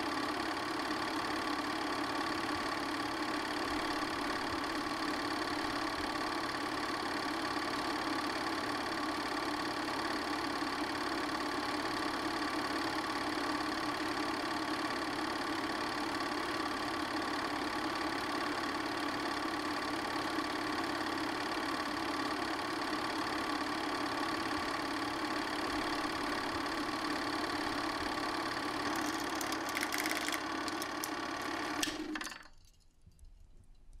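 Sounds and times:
film projector whirring and clattering: 0:00.0 - 0:32.6
projector clicking: 0:28.8 - 0:32.5.

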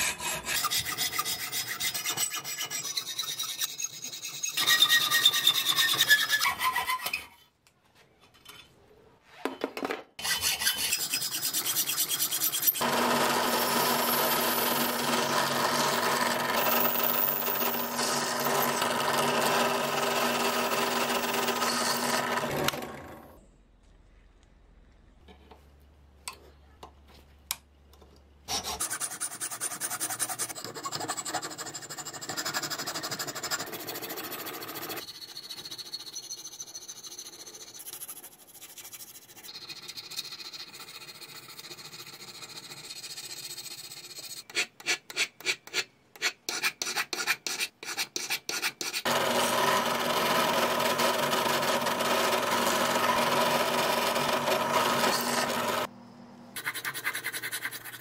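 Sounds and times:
hand filing and sanding: 0:00.0 - 0:07.1, 0:28.5 - 0:49.1, 0:56.6 - 0:58.0.

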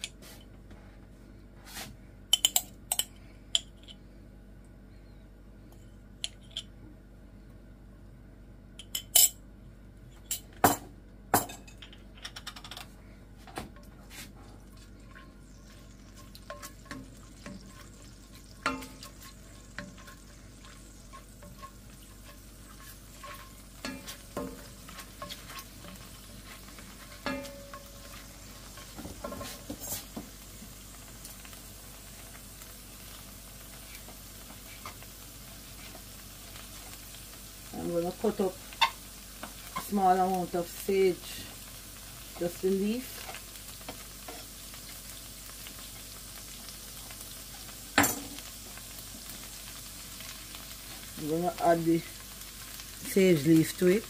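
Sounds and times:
oil sizzling: 0:13.8 - 0:54.0
spoon stirring and scraping: 0:14.1 - 0:30.2, 0:33.7 - 0:37.0, 0:43.2 - 0:44.6
teaspoon tapping on pan: 0:27.2 - 0:28.0.

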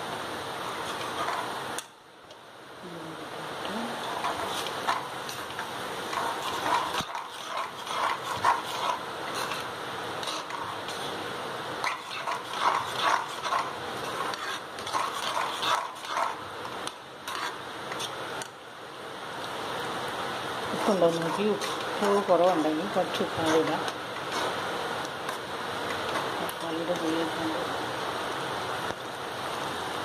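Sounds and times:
curry sizzling: 0:00.0 - 0:30.0
spatula scraping frying pan: 0:00.6 - 0:01.6, 0:03.9 - 0:18.5, 0:20.8 - 0:27.4.

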